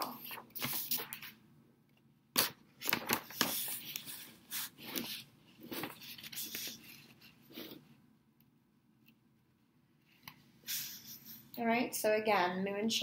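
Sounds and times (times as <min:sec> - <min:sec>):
paper rustling and crinkling: 0:00.0 - 0:01.4, 0:02.4 - 0:07.8.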